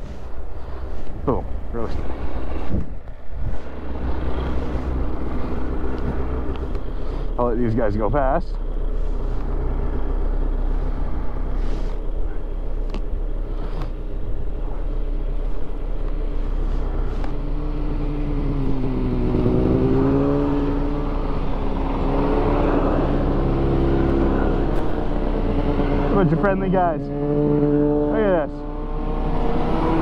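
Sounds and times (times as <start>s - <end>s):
snowmobiles passing by: 3.5s - 12.6s, 16.2s - 30.0s
snowmobile engine idling: 3.6s - 27.2s.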